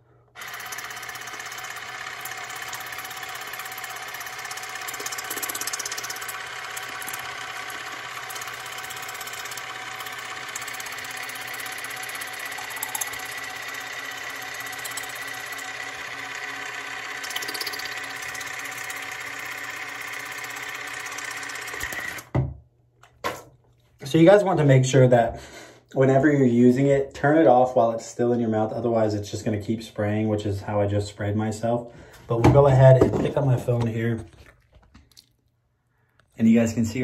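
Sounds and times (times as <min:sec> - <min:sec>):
water flosser motor buzzing: 0:00.3 - 0:22.5.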